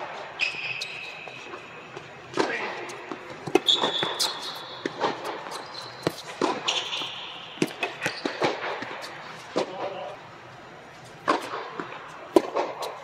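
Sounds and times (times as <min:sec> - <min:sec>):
shoes squeaking on court: 0:00.4 - 0:10.1
tennis ball bouncing: 0:01.5 - 0:09.9, 0:11.2 - 0:13.0
racket striking tennis ball: 0:02.3 - 0:09.9, 0:11.2 - 0:13.0.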